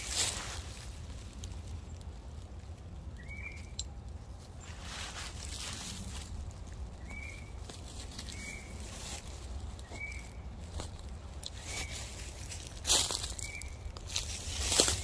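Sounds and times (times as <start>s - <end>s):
dry leaves rustling: 0.0s - 15.0s
bird chirping: 3.2s - 4.0s, 7.0s - 7.6s, 8.2s - 8.9s, 9.8s - 10.5s, 13.2s - 13.9s.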